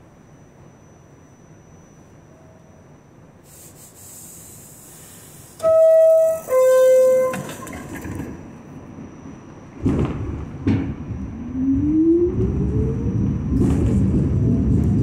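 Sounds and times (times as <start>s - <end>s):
steady hiss: 3.4s - 7.1s.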